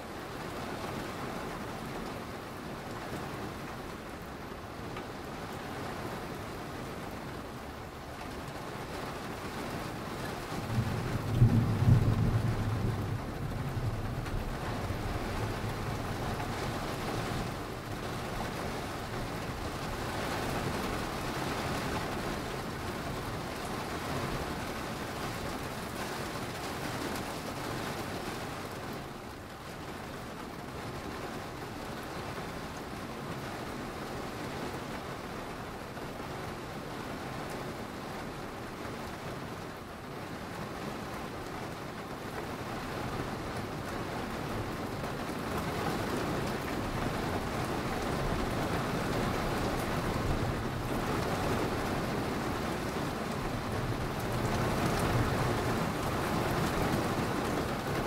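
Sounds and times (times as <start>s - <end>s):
steady rain: 0.0s - 58.0s
thunder rumbling: 10.5s - 27.7s, 44.5s - 58.0s.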